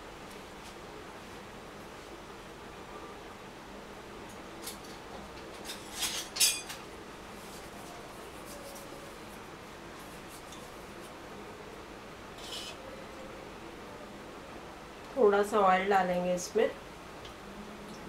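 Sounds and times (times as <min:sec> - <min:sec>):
kitchenware clinking: 0:05.6 - 0:06.8.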